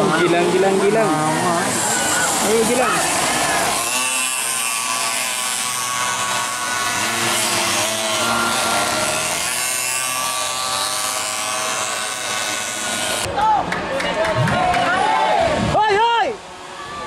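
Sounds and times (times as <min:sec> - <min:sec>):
pocket bike engines racing past: 0:00.0 - 0:13.4.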